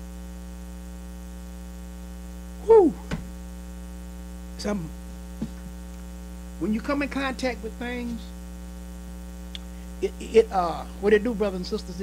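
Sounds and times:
electrical mains hum: 0:00.0 - 0:12.0
short vocal sounds: 0:02.6 - 0:03.2.

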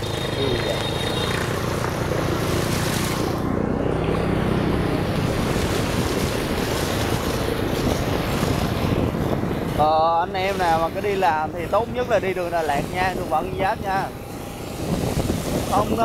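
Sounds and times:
motorbike engine hum: 0:00.0 - 0:16.0
water splashing around wheels: 0:00.0 - 0:16.0
wind on microphone: 0:01.6 - 0:16.0.

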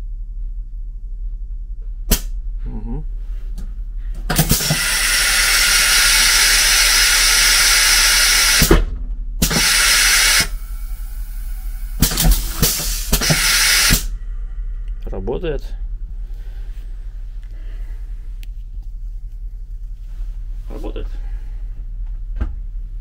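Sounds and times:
compressed air hiss: 0:04.2 - 0:08.8, 0:09.4 - 0:14.2
valve clicks: 0:04.3 - 0:08.8, 0:09.4 - 0:14.1.

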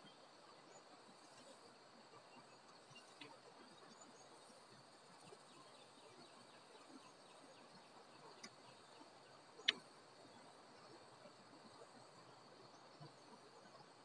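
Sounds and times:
soft ticks: 0:02.6 - 0:03.6, 0:08.2 - 0:08.8, 0:09.5 - 0:10.0
sharp click: 0:09.6 - 0:09.8.

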